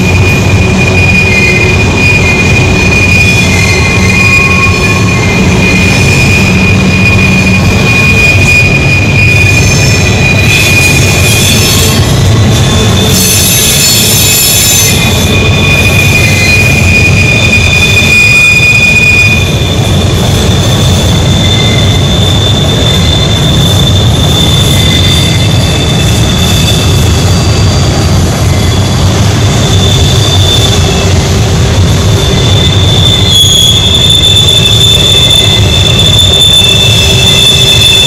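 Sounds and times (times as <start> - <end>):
locomotive engine rumble: 0.0 - 24.8
train wheels squealing: 0.0 - 38.0.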